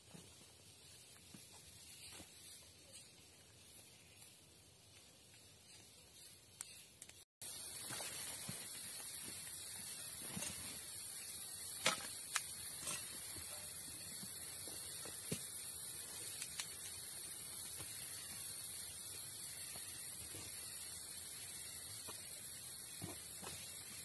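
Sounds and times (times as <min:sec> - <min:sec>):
forest insects chorus: 0:07.4 - 0:24.0.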